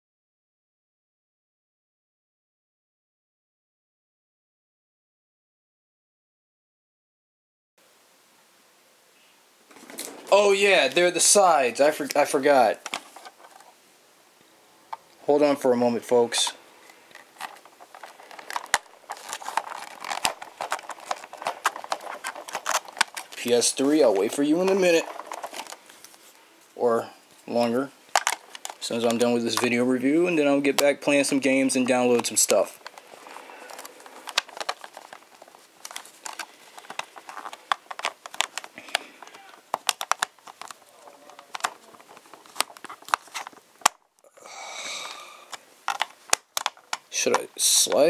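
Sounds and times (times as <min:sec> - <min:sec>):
plastic toy parts clicking: 0:17.1 - 0:23.5, 0:28.1 - 0:28.8, 0:32.2 - 0:44.0, 0:45.4 - 0:48.0
sharp plastic snaps: 0:33.7 - 0:44.0, 0:45.5 - 0:48.0.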